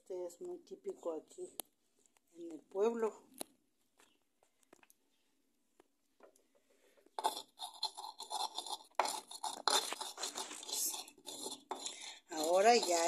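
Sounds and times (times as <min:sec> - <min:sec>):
stone pestle grinding in bowl: 0:07.2 - 0:13.0.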